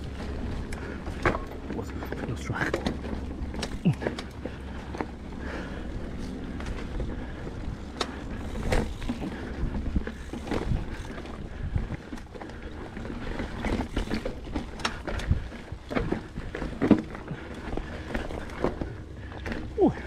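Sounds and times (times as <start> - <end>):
bike clicks and rattles on rocks: 0.0 - 20.0
wind rumble on microphone: 5.2 - 16.6.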